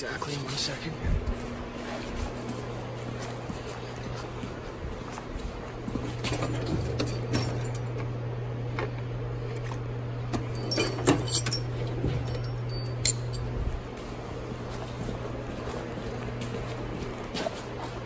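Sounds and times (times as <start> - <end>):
steady low hum: 0.0 - 18.0
steel sockets clinking: 10.4 - 13.6.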